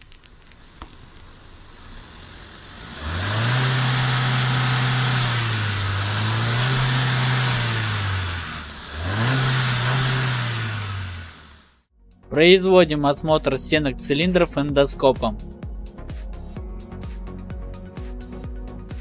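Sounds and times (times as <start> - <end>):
car engine revving: 0.6 - 11.8.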